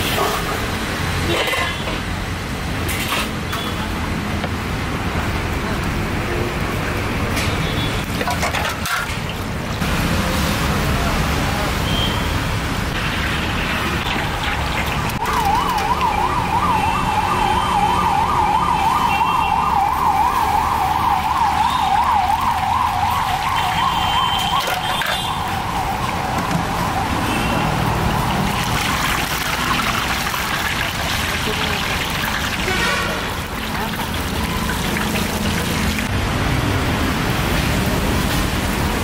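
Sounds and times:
street noise: 0.0s - 39.0s
siren warbling: 15.1s - 27.2s.

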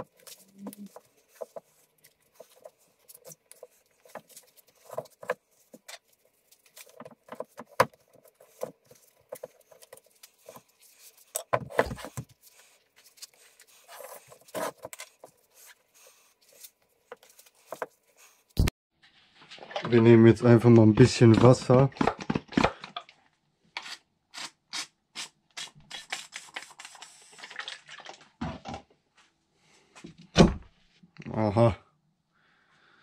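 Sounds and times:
thump: 30.4s - 30.7s.

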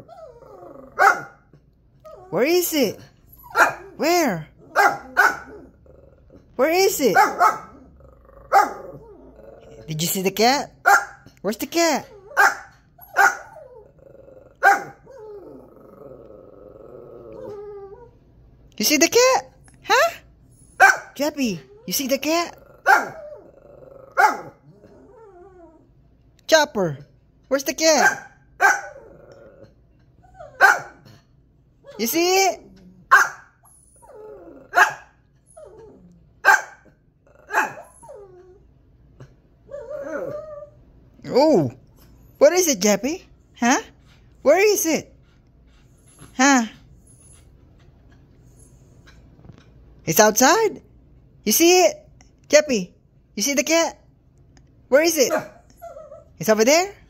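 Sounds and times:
dog growling low: 0.0s - 1.0s, 3.8s - 6.6s, 7.6s - 10.1s, 13.5s - 18.2s, 21.7s - 26.0s, 28.9s - 30.6s, 32.6s - 33.1s, 33.9s - 34.8s, 35.5s - 36.4s, 37.2s - 41.9s
small dog barking: 1.0s - 1.4s, 3.5s - 4.0s, 4.7s - 5.6s, 7.1s - 7.8s, 8.5s - 9.0s, 10.8s - 11.2s, 12.3s - 13.6s, 14.6s - 15.1s, 20.8s - 21.2s, 22.8s - 23.2s, 24.2s - 24.6s, 28.0s - 29.0s, 30.6s - 31.1s, 33.1s - 33.5s, 34.7s - 35.1s, 36.4s - 36.9s, 37.5s - 37.9s, 55.3s - 55.6s
dog making wavering sounds: 11.9s - 18.2s, 39.7s - 42.5s.

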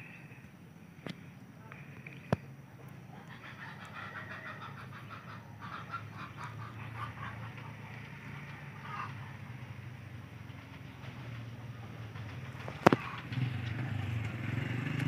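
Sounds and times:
chattering animal calls: 1.8s - 13.4s.

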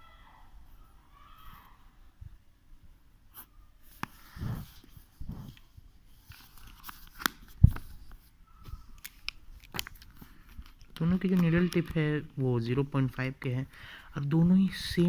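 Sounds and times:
pen clicks: 9.0s - 12.1s.

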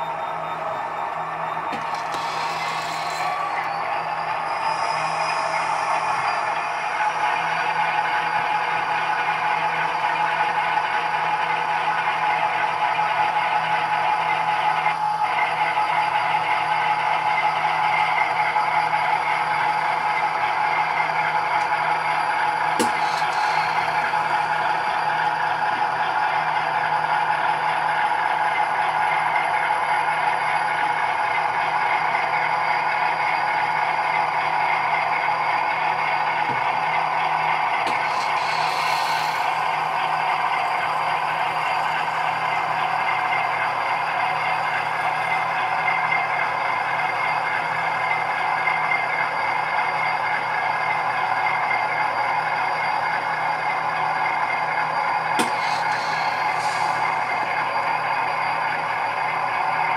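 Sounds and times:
diesel engine sound: 0.0s - 59.9s
train wheels clattering on track: 1.7s - 3.8s, 21.0s - 28.1s, 35.9s - 44.8s, 55.2s - 57.9s.

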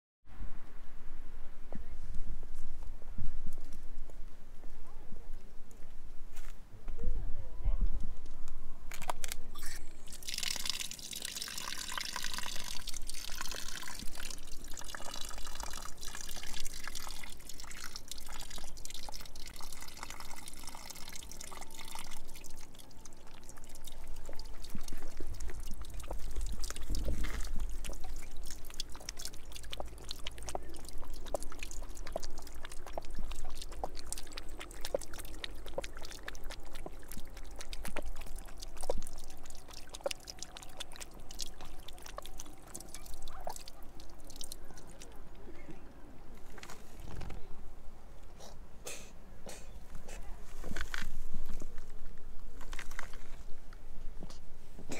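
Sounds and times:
water splashing onto drain grate: 10.0s - 45.1s
cat lapping water: 10.1s - 45.4s.

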